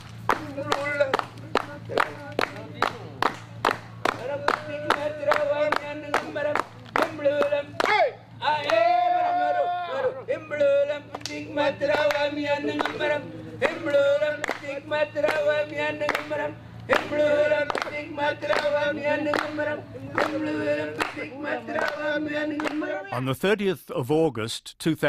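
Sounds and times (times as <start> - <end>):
rhythmic clapping: 0.0 - 9.4, 10.4 - 23.1
group of voices singing: 4.1 - 23.3.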